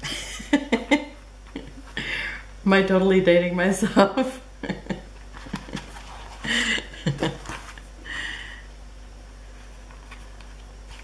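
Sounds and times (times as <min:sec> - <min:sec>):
person breathing out: 0:02.0 - 0:02.5, 0:08.0 - 0:08.7.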